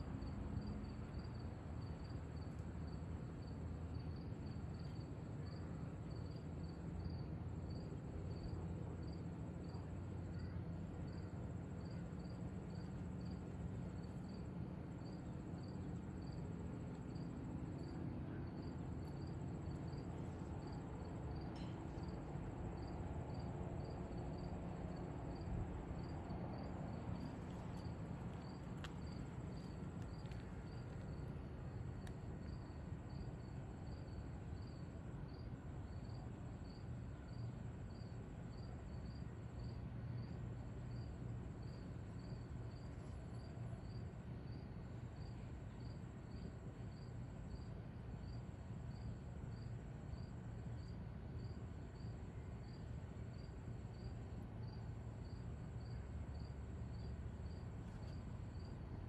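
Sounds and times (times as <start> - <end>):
crickets chirping: 0.0 - 59.0
low steady rumble: 0.0 - 59.0
high insect trill: 14.0 - 31.2, 45.2 - 58.7.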